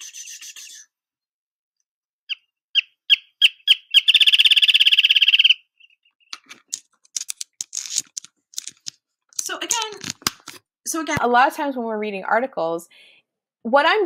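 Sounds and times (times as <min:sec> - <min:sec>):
bird song accelerating into trill: 0:02.3 - 0:06.3.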